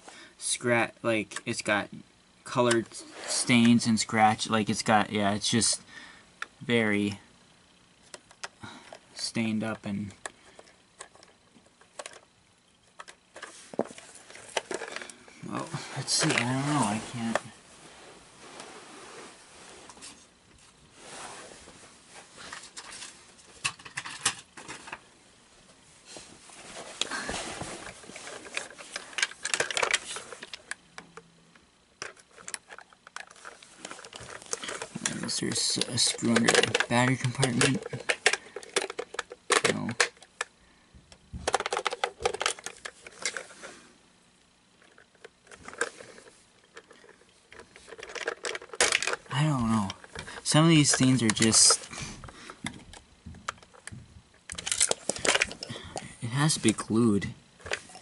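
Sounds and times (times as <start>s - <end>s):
plastic toy clicks and knocks: 10.2s - 12.2s, 28.5s - 31.2s, 32.0s - 40.5s, 41.4s - 43.4s, 46.7s - 51.8s, 52.6s - 55.7s
rustling: 26.0s - 30.8s, 32.0s - 39.6s.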